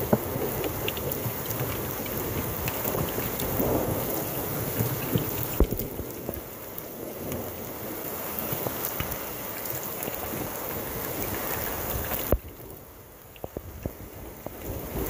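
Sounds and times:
rain: 0.0 - 15.0
wind buffeting microphone: 0.0 - 15.0.

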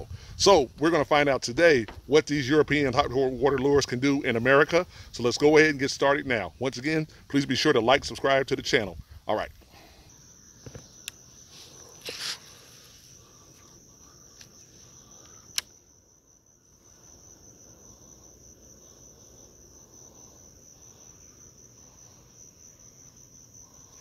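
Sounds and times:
crickets trilling: 0.0 - 24.0
sharp click: 15.2 - 15.8.

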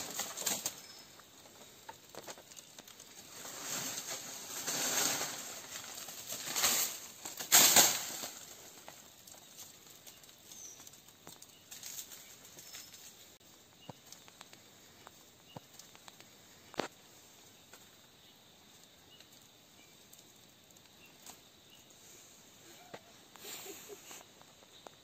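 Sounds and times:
small clicks and rustles: 0.0 - 17.0, 18.7 - 25.0.

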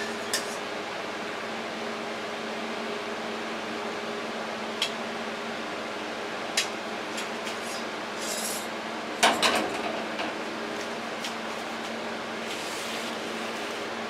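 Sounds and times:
low appliance hum: 0.0 - 14.0
scrape on countertop: 12.4 - 13.9.

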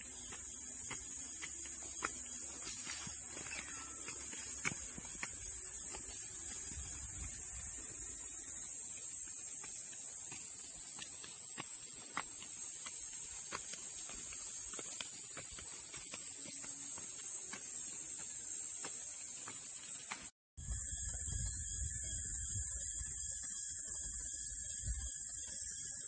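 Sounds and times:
footsteps on stone steps: 0.0 - 20.3
insects droning: 0.0 - 26.0.

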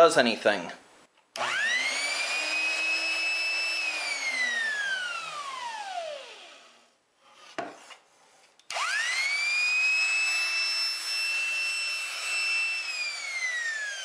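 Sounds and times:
saw motor whine: 1.4 - 6.8, 8.7 - 14.0.

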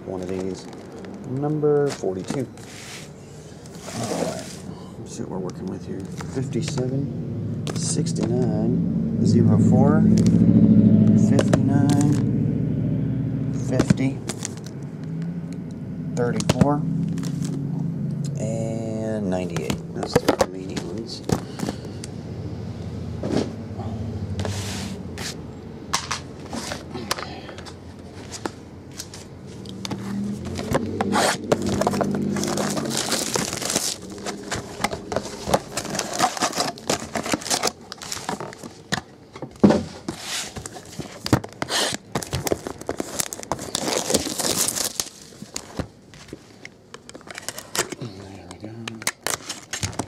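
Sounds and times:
cardboard boxes scraping and knocking: 3.7 - 4.6, 28.0 - 38.9, 39.5 - 46.4.

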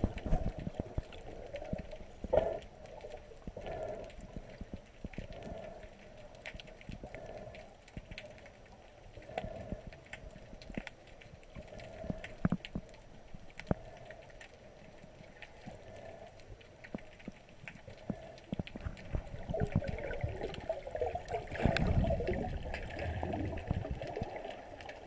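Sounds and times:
underwater clicks and crackles: 0.0 - 25.0
low underwater swell: 18.0 - 25.0.

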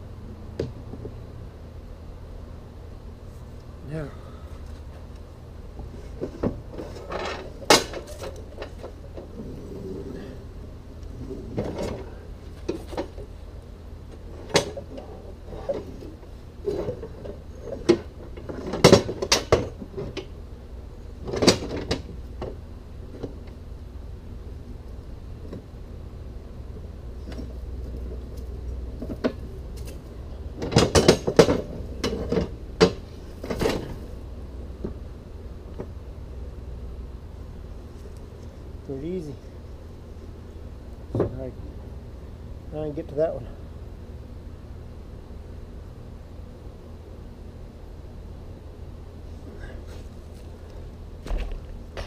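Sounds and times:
metal clanks and knocks: 5.8 - 9.4, 16.6 - 20.3, 21.2 - 22.6, 30.6 - 34.0.

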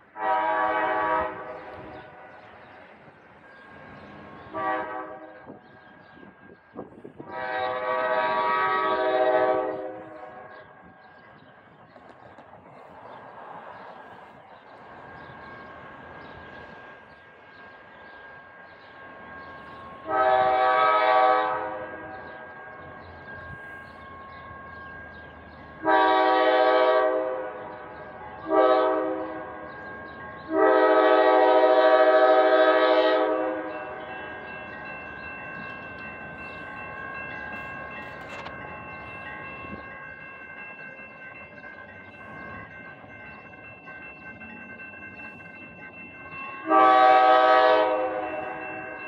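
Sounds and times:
diesel locomotive air horn: 0.1 - 1.9, 4.5 - 5.6, 7.2 - 10.5, 20.0 - 22.2, 25.8 - 27.7, 28.4 - 29.6, 30.5 - 33.8, 46.6 - 48.7.

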